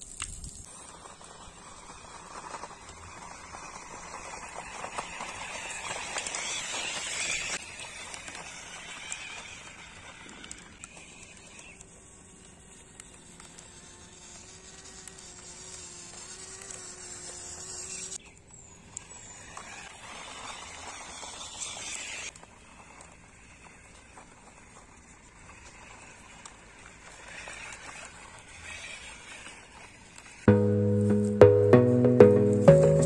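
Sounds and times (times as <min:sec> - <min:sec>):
plants crackling under tyres: 0:00.0 - 0:18.2
toy tractor motor whine: 0:00.7 - 0:30.5.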